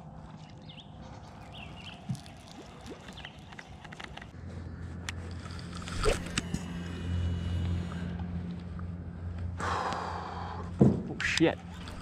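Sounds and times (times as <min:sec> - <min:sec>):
electric boat motor humming: 0:05.0 - 0:10.4.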